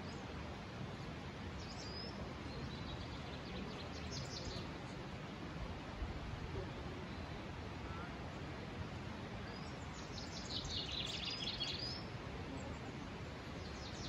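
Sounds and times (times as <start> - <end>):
outdoor background rush: 0.0 - 14.0
small birds chirping: 1.6 - 5.0, 9.4 - 14.0.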